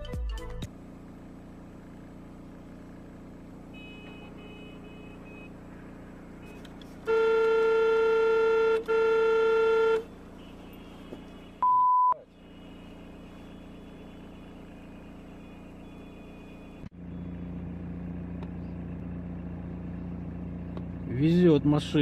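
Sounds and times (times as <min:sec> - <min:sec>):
city traffic hum: 0:00.4 - 0:22.0
car horn blasts: 0:03.7 - 0:05.6, 0:06.4 - 0:16.8.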